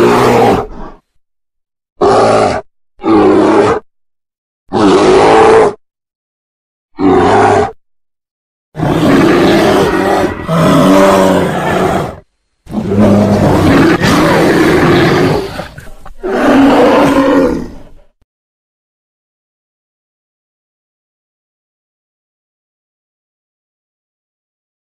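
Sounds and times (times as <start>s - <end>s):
bear roaring: 0.0s - 1.0s, 2.0s - 3.8s, 4.7s - 5.8s, 7.0s - 7.8s, 8.8s - 18.0s.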